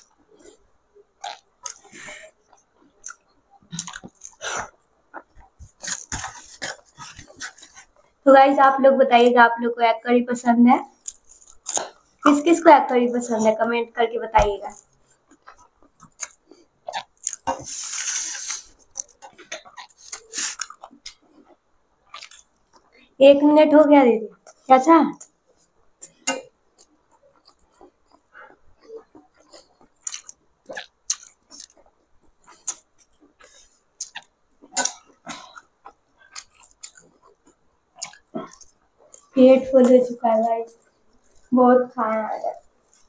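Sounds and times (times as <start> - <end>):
wet chewing and lip smacks: 1.2 - 8.1, 11.0 - 12.3, 14.7 - 23.0, 24.4 - 41.5, 42.6 - 43.0
short hiss: 17.6 - 18.7.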